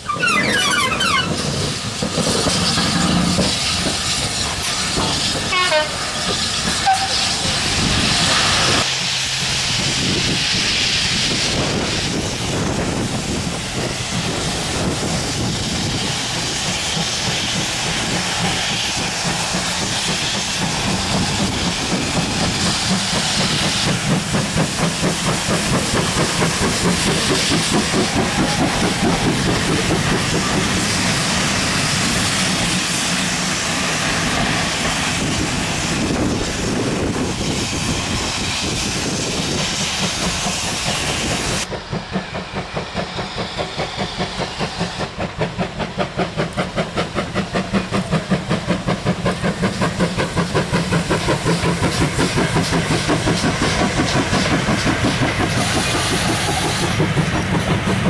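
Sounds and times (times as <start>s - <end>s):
rhythmic beats of passing train: 0.0s - 58.0s
steam engine hissing: 0.0s - 58.0s.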